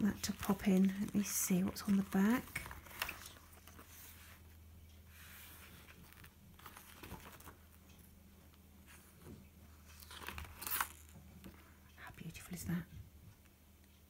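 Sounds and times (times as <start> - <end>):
low steady hum: 0.0 - 14.0
paper pages turning: 0.2 - 4.4, 5.3 - 7.7, 9.9 - 11.6.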